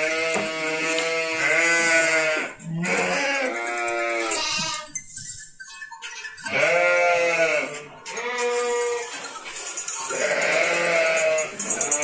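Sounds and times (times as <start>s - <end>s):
sheep bleating: 0.0s - 5.0s, 6.5s - 9.2s, 10.1s - 12.0s.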